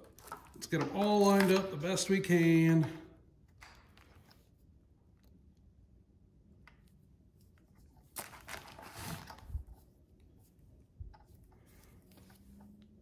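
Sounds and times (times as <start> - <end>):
rustling and scraping of wires: 7.2 - 13.0.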